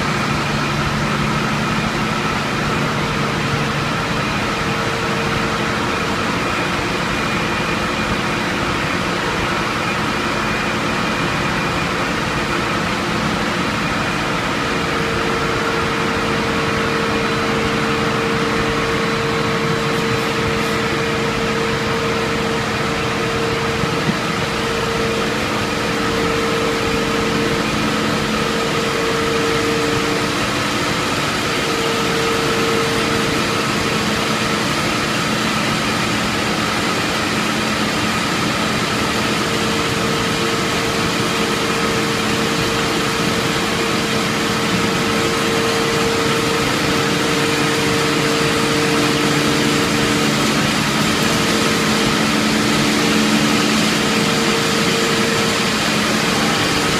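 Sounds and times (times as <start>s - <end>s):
machine whir: 0.0s - 56.9s
steady hum tones: 0.0s - 56.9s.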